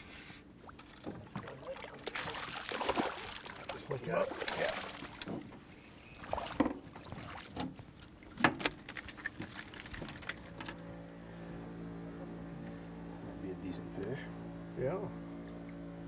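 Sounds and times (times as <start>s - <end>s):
boat motor running: 9.3s - 16.0s.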